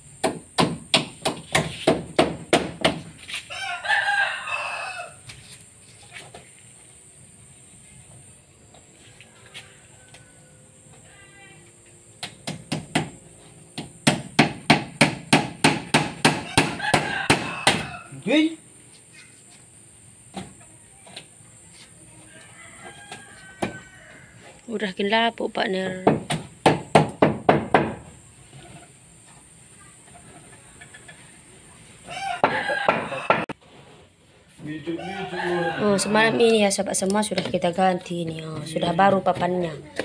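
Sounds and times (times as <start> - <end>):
hammer striking nails into wood: 0.2 - 3.1, 12.2 - 13.2, 13.8 - 17.9, 26.0 - 28.0.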